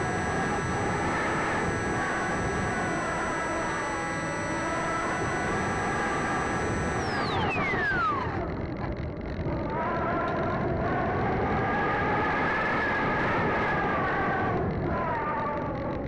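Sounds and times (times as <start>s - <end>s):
electric motor whine: 0.0s - 9.4s
low motor hum: 0.0s - 10.3s.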